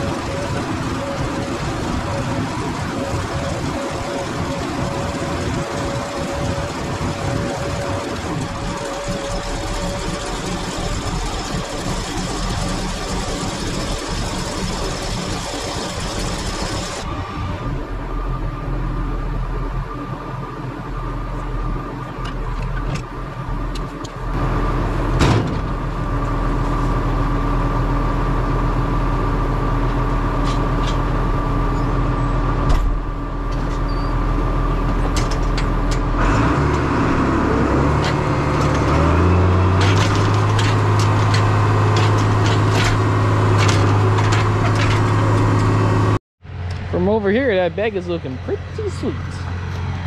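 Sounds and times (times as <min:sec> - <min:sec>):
tractor engine running: 0:00.0 - 0:50.0
wagon clicks and rattles: 0:39.8 - 0:45.7.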